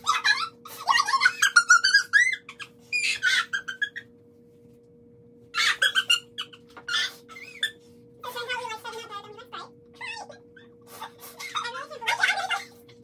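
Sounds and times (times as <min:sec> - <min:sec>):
women laughing hard: 0:05.6 - 0:07.7.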